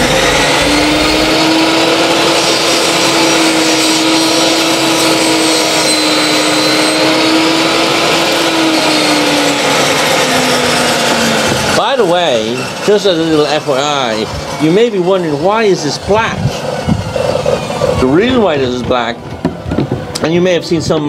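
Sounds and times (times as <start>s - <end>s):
table saw ripping a board: 0.0s - 14.2s.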